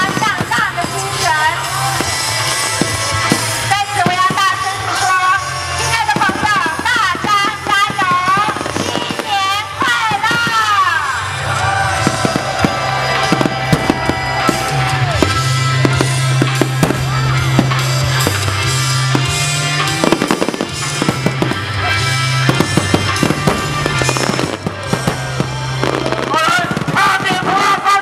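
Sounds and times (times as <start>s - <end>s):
music with low bass: 11.2s - 27.0s
firework shells bursting: 12.0s - 21.7s, 22.3s - 27.0s.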